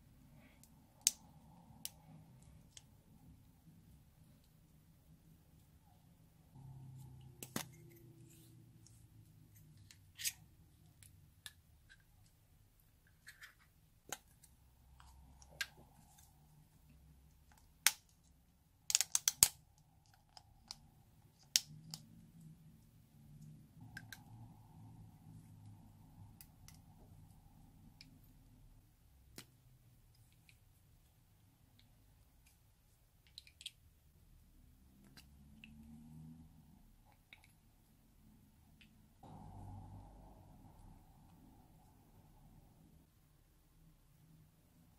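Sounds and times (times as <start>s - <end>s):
plastic tool clicking on tubes: 17.5s - 22.2s.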